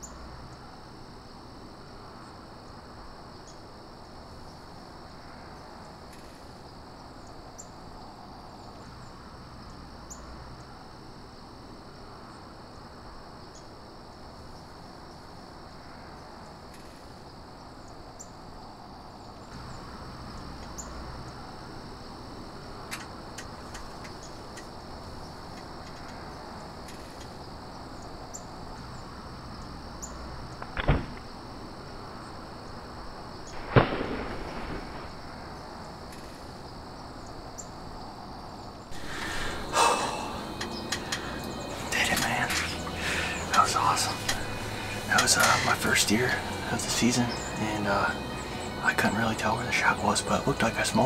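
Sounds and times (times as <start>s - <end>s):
crickets chirping: 0.0s - 51.0s
sharp thumps of bow shot: 30.6s - 31.2s, 33.6s - 35.0s.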